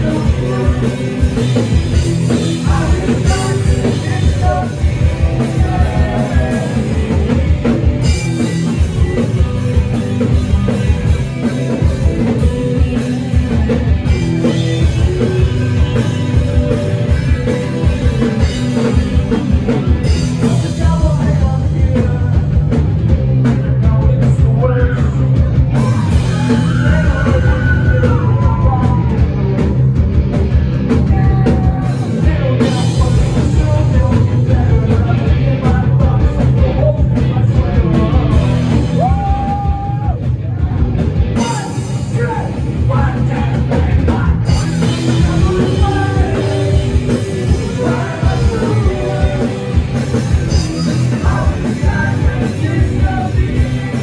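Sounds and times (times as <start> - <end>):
live rock band playing: 0.0 - 54.0.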